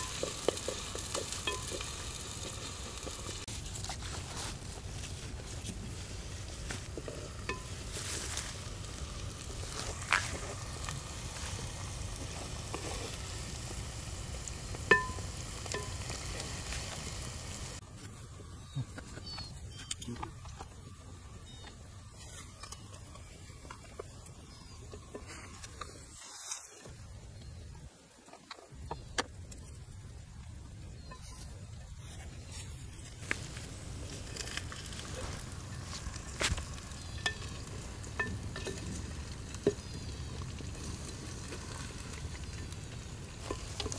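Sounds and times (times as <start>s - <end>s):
scraping in a pot: 0.0s - 14.1s
onions frying in oil: 0.0s - 17.8s, 18.7s - 27.7s, 28.7s - 43.9s
wood fire crackling and popping: 0.0s - 18.2s, 28.3s - 43.9s
light sizzle: 0.0s - 43.9s.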